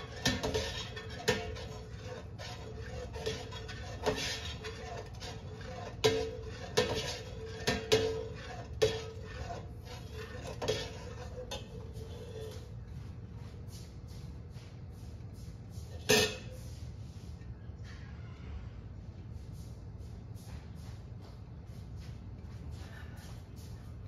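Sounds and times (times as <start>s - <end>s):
ladle scraping metal pot: 0.0s - 12.8s, 15.8s - 16.8s.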